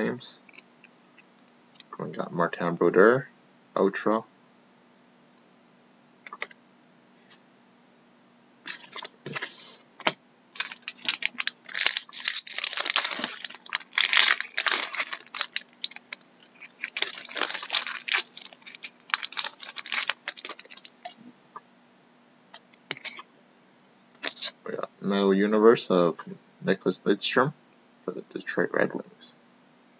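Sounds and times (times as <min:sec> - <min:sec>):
foil wrapper tearing and crinkling: 0:08.7 - 0:21.2.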